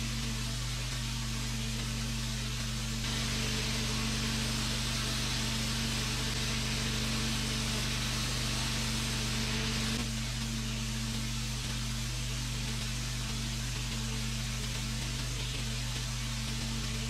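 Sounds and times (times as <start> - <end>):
washer motor hum: 1.5 - 12.0
pressure washer water jet hissing: 3.0 - 10.3.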